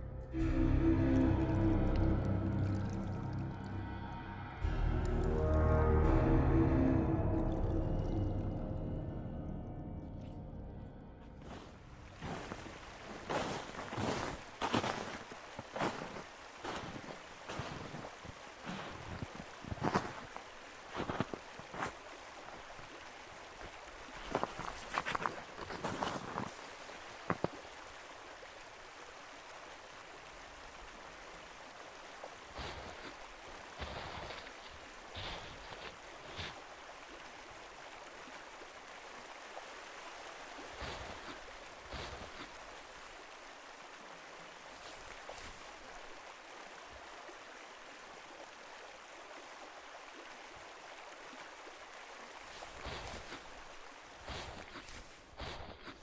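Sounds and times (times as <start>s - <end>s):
stream flowing: 0.0s - 56.0s
footsteps in snow: 11.3s - 22.1s, 23.6s - 27.6s, 32.5s - 36.7s, 40.6s - 43.3s, 44.7s - 45.9s, 52.4s - 56.0s.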